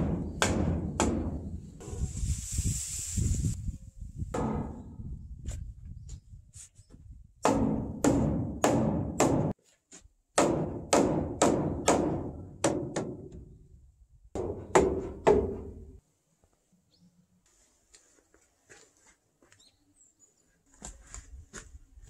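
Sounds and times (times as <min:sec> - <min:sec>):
mallet knocking on wooden post: 0:07.4 - 0:09.6, 0:14.4 - 0:15.8.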